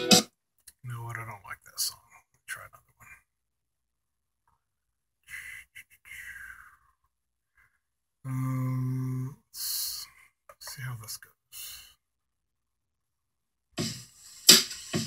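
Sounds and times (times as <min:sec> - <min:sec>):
soft breathy sighs: 0:05.2 - 0:12.0.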